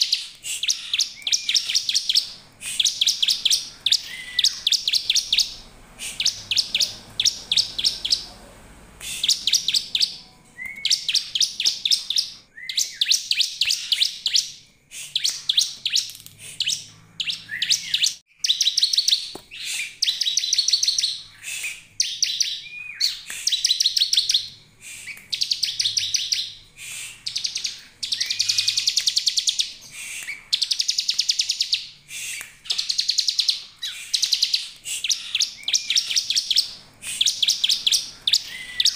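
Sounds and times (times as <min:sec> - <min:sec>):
bird rapid high trills: 0:00.0 - 0:14.4, 0:25.3 - 0:38.9.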